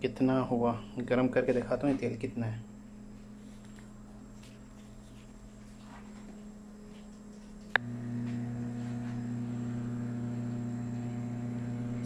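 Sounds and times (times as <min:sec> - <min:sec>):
microwave oven humming: 0:00.0 - 0:12.0.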